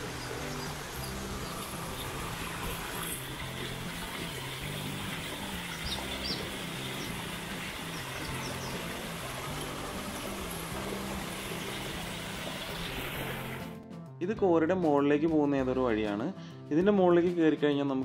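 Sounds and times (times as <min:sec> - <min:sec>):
stream splashing over rocks: 0:00.0 - 0:13.7.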